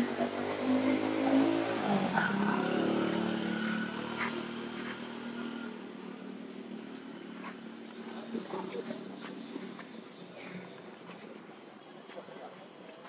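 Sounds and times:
vehicle engine passing by: 0.0 - 5.8.

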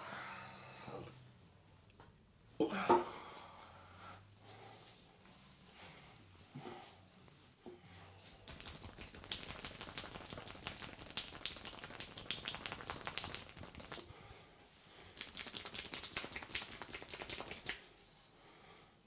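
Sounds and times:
hands tapping in massage: 8.5 - 14.1.

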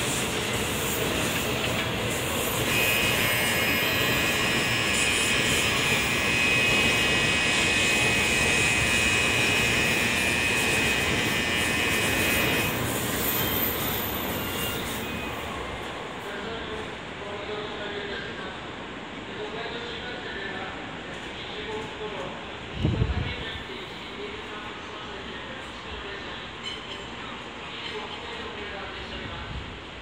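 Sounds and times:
trains rushing noise: 0.0 - 30.0
platform departure bell ringing: 1.7 - 12.8.

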